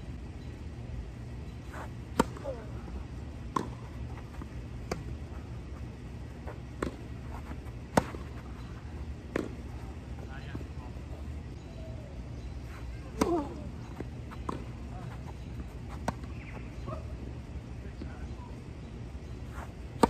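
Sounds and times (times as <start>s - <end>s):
steady low rumble: 0.0s - 20.0s
tennis rackets hitting ball: 2.1s - 2.7s, 3.5s - 5.1s, 6.5s - 8.4s, 9.2s - 9.7s, 13.1s - 16.6s.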